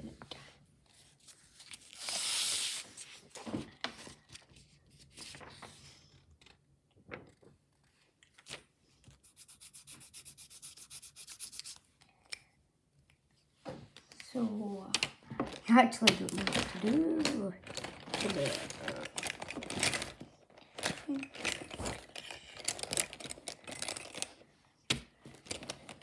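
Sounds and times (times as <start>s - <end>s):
rubbing and scraping handling noise: 7.2s - 12.0s, 13.3s - 26.0s.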